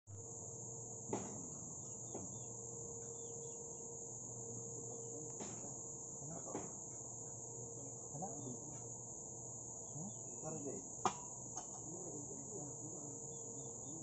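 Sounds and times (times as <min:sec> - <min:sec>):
insects droning: 0:00.1 - 0:14.0.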